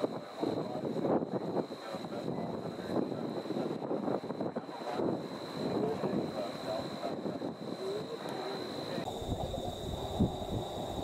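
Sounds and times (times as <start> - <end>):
wind buffeting microphone: 0.0 - 7.8, 9.0 - 11.0
distant jet engine: 0.0 - 11.0
high-pitched whine: 4.6 - 11.0.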